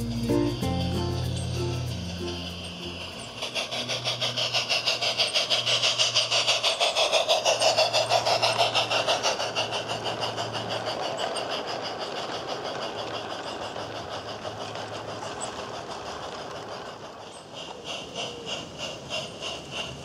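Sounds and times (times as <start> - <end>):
model steam locomotive chuffs: 0.0 - 20.0
wagons rolling on track: 0.0 - 20.0.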